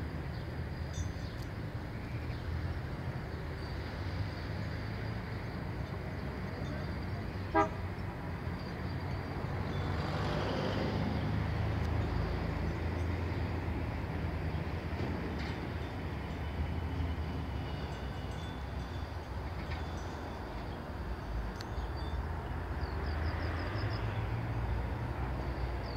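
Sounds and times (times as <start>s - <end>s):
road traffic rumble: 0.0s - 25.9s
car horn toot: 7.5s - 7.8s.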